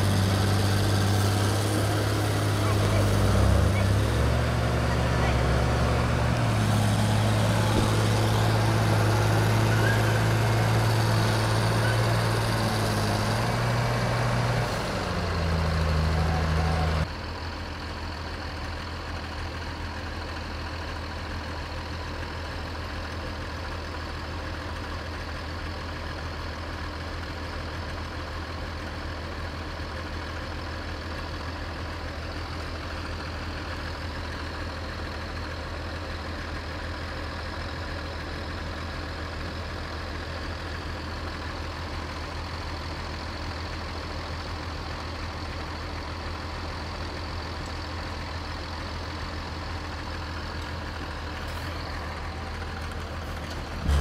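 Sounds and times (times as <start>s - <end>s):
diesel truck engine running hard: 0.0s - 54.0s
engine idling: 0.0s - 54.0s.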